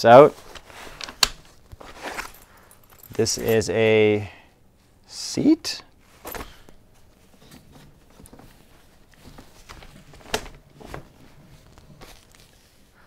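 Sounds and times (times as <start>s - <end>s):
soft plastic knocks and rustles: 6.2s - 12.6s.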